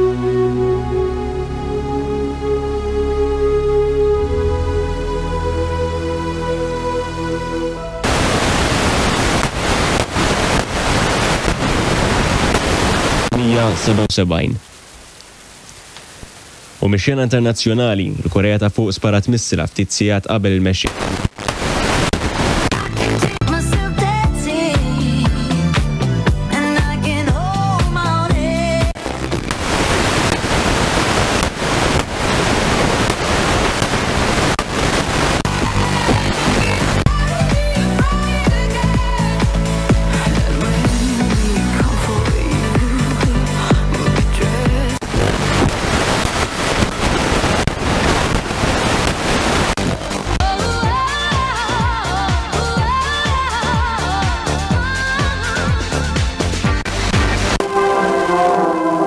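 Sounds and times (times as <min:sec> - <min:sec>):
ambient music with held tones: 0:00.0 - 0:09.2, 0:50.4 - 0:59.0
song on radio: 0:04.3 - 0:14.1, 0:20.9 - 0:59.0
radio static hiss: 0:08.0 - 0:23.5, 0:28.9 - 0:37.3, 0:44.9 - 0:51.1.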